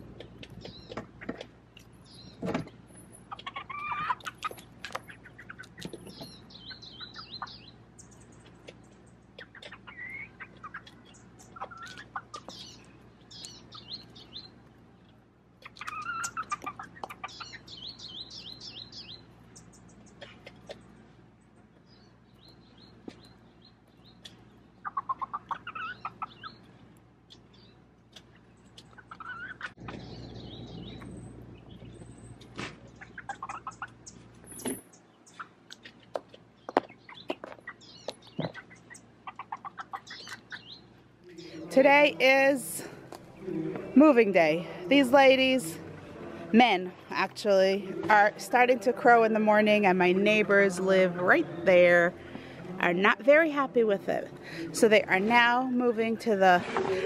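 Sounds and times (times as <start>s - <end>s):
small birds chirping: 0.0s - 45.6s
chickens clucking: 0.0s - 48.9s.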